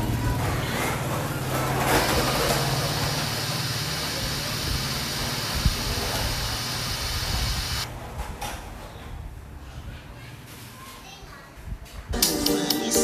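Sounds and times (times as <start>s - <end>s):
electronic hiss: 2.0s - 7.9s.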